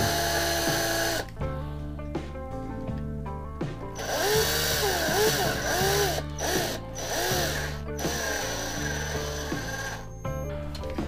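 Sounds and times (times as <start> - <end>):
power drill drilling metal: 0.0 - 1.3, 4.0 - 10.5
background music: 0.0 - 11.0.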